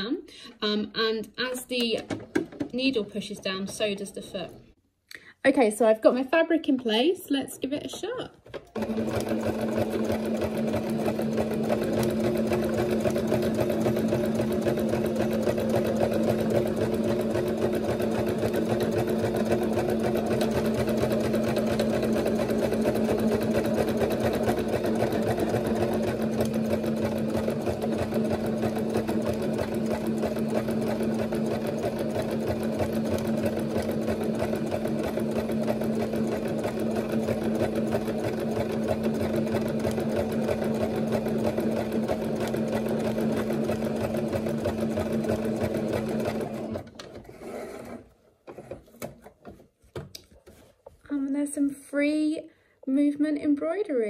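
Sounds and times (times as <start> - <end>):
sewing machine running: 8.5 - 48.8.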